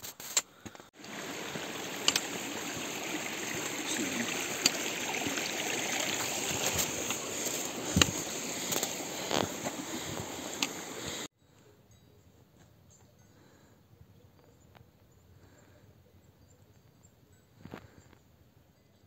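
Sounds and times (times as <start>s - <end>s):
mountain stream rushing: 1.0s - 11.3s
hiking boots and pole on rock: 1.9s - 2.4s, 6.0s - 10.9s.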